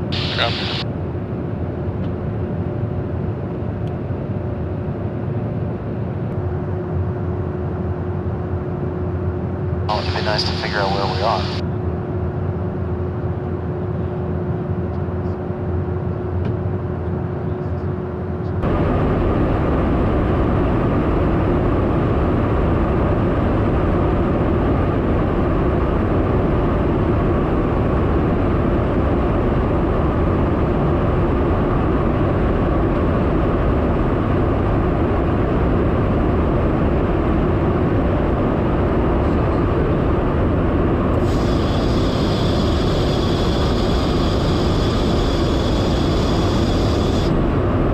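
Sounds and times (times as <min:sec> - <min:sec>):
faint steady hum: 0:00.0 - 0:00.8, 0:09.9 - 0:11.7, 0:18.6 - 0:47.9
aircraft engine drone and airflow: 0:00.0 - 0:47.9.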